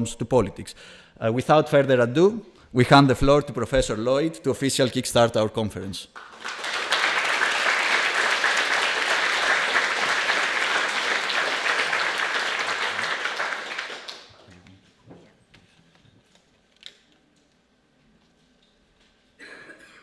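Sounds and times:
audience applauding: 0:06.2 - 0:14.6.

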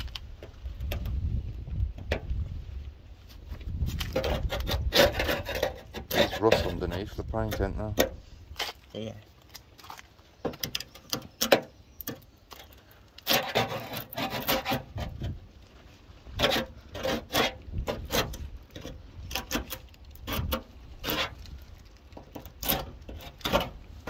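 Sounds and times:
chisel scraping paint off metal: 0:04.1 - 0:08.2, 0:13.2 - 0:15.4, 0:16.4 - 0:21.5, 0:22.2 - 0:23.8.

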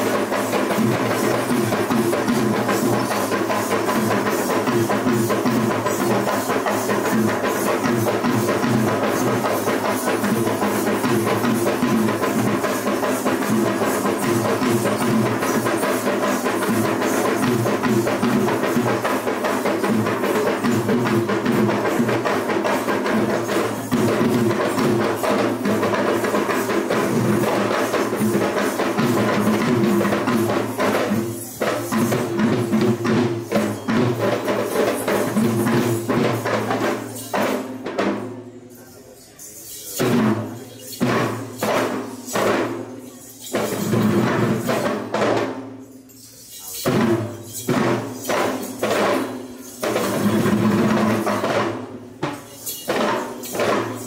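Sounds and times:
hand drums ensemble: 0:00.0 - 0:54.0.

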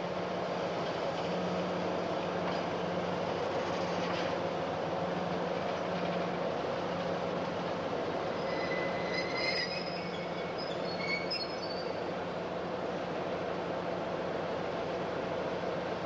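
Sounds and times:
diesel locomotive engine rumbling: 0:00.0 - 0:16.0
high-pitched wheel squeals: 0:08.3 - 0:12.1.

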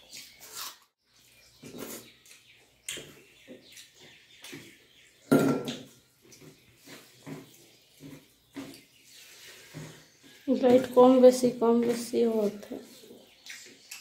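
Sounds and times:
chewing and lip-smacking: 0:13.4 - 0:14.0.

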